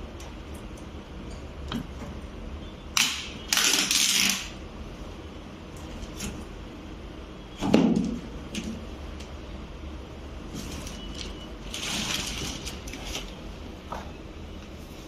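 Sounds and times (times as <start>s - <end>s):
plastic sheet crinkling: 10.6s - 13.4s.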